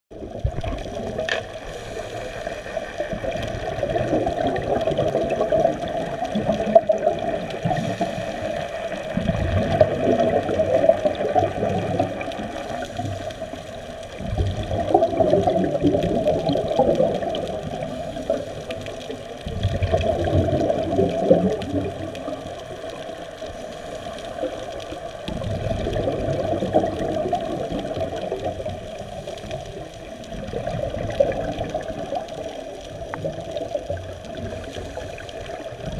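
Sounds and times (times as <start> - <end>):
air bubbling underwater: 3.1 - 13.0, 14.2 - 22.5, 25.3 - 28.9, 30.3 - 32.4.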